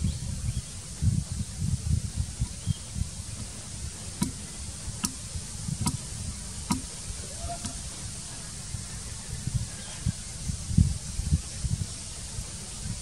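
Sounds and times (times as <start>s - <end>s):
high insect drone: 0.0s - 13.0s
low rumbling thumps: 0.0s - 13.0s
sharp ticks: 4.2s - 7.9s.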